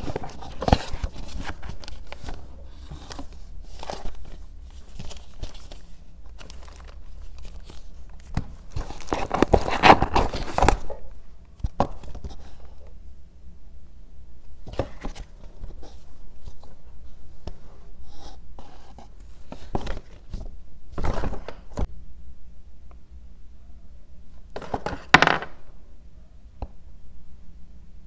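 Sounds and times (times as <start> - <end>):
paper rustling: 0.0 - 11.0.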